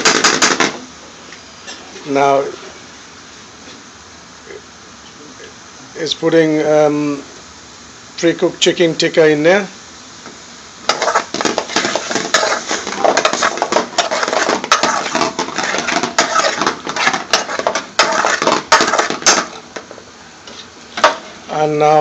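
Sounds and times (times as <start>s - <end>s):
metal utensil scraping a pan: 10.9s - 19.8s.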